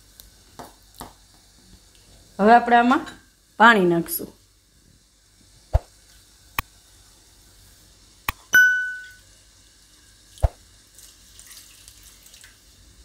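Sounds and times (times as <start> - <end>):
bell ding: 8.6 - 9.2
water pouring into plastic bowl: 10.4 - 12.7.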